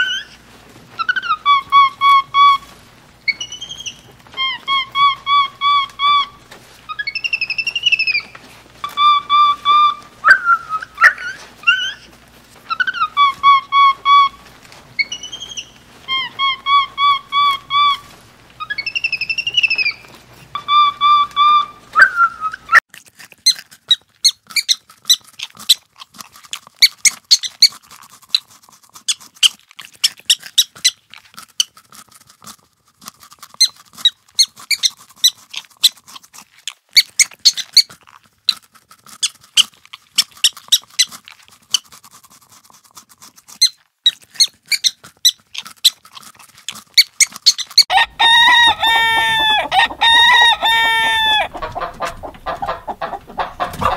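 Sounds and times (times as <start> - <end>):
short high squeaks: 0.0 - 0.4
hens clucking: 0.0 - 22.8, 47.3 - 53.9
whistled calls: 3.3 - 8.3, 8.9 - 12.0, 15.0 - 22.8.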